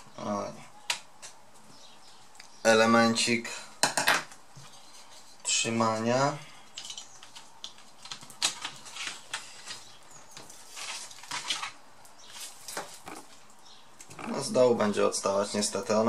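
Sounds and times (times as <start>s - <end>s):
plastic laptop parts clicking: 6.8s - 9.8s.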